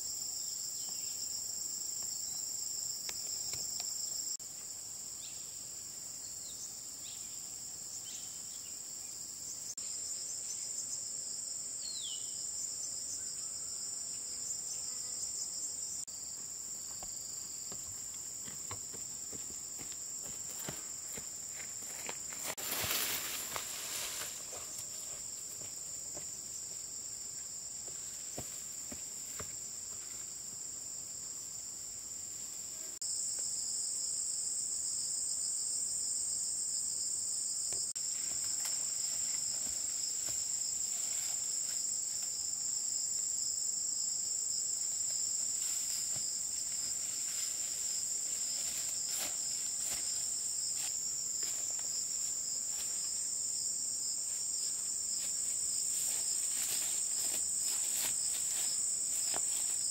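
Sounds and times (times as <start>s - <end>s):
insects chorus: 0.0s - 59.9s
rustling through undergrowth: 20.2s - 25.7s, 45.4s - 53.3s, 54.3s - 59.9s.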